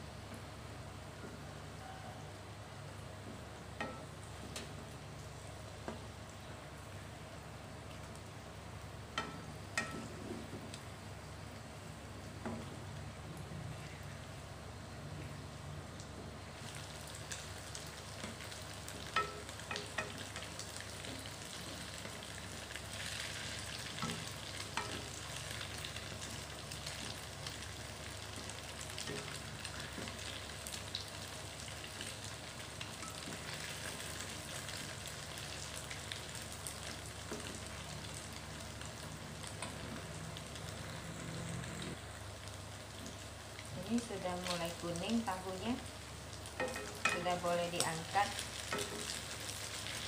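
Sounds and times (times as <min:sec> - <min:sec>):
tofu sizzling in hot oil: 0:16.0 - 0:50.0.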